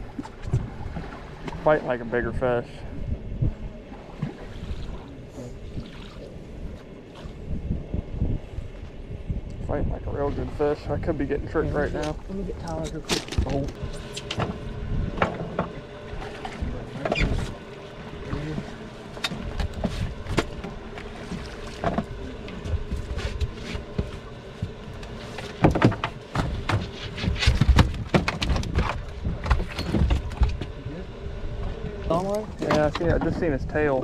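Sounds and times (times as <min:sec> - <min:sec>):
knocks and thumps on boat: 0:00.0 - 0:01.8, 0:11.8 - 0:30.8, 0:31.6 - 0:34.0
wind on microphone: 0:00.0 - 0:18.7.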